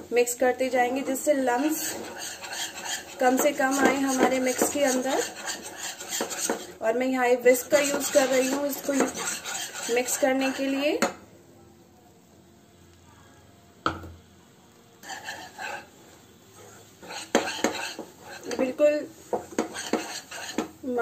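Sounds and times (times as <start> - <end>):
whisk scraping a pan: 0.6 - 6.8, 7.4 - 10.9, 15.0 - 21.0.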